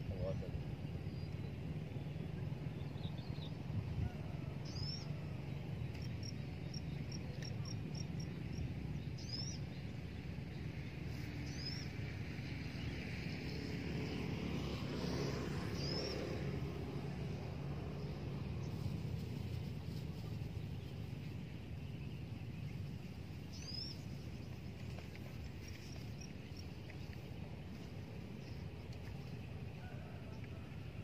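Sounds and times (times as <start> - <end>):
steady low rumble: 15.8 - 31.0
birds chirping: 20.4 - 29.7.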